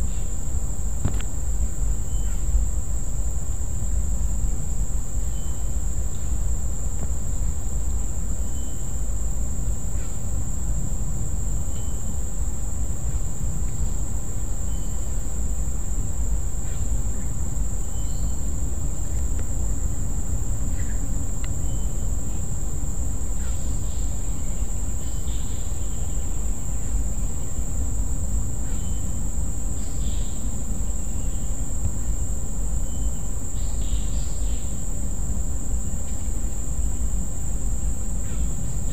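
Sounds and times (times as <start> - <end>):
insects trilling and chirping: 0.0 - 38.9
steady low rumble: 0.0 - 38.9.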